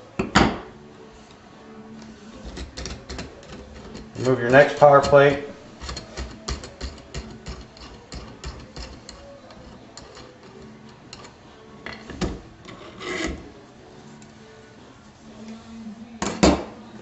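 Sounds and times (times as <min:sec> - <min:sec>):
metal scrape: 0:02.0 - 0:13.6.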